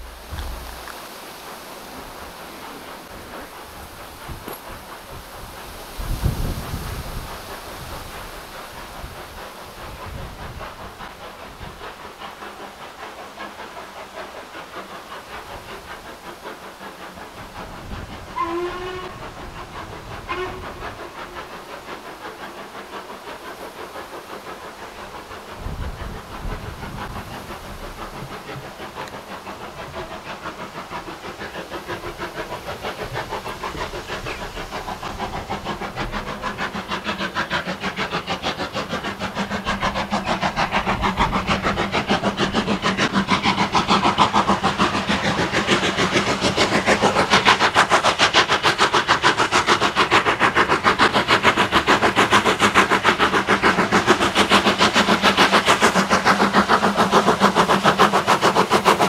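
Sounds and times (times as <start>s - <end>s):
steam locomotive chuffing: 0.0s - 59.0s
steam whistle blasts: 18.4s - 19.3s, 20.3s - 20.9s.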